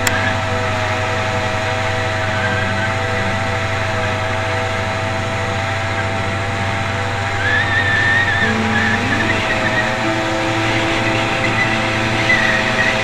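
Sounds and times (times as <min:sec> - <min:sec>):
small gas engine droning: 0:00.0 - 0:13.0.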